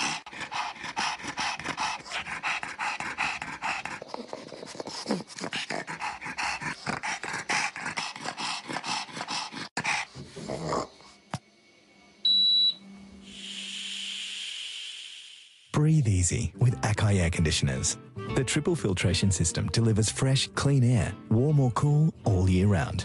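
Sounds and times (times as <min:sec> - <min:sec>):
dog panting: 0:00.0 - 0:10.5.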